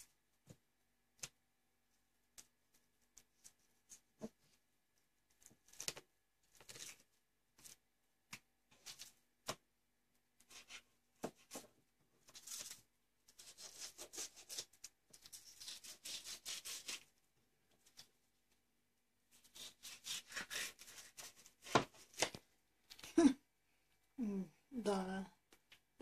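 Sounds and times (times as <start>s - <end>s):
knife scraping fish skin: 13.4s - 17.1s, 19.4s - 21.4s.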